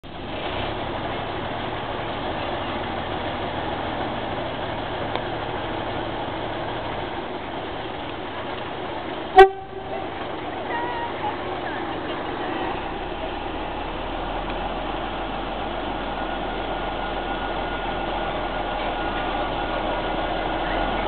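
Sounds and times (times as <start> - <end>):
diesel locomotive engine running: 0.0 - 21.0
short loud horn toot: 9.4 - 10.0.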